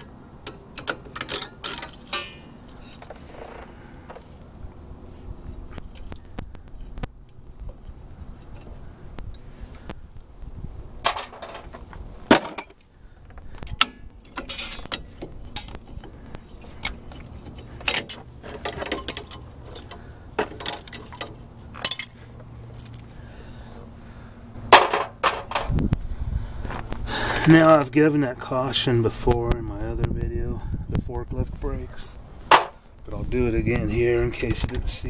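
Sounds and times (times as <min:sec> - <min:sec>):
sharp metal knocks: 0:00.5 - 0:02.5, 0:24.7 - 0:25.7, 0:32.5 - 0:32.8.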